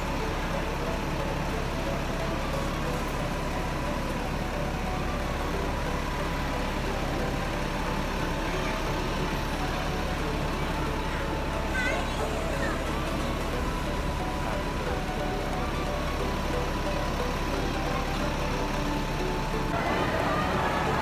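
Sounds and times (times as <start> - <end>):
bus diesel engines rumbling: 0.0 - 21.0
street traffic: 0.0 - 21.0.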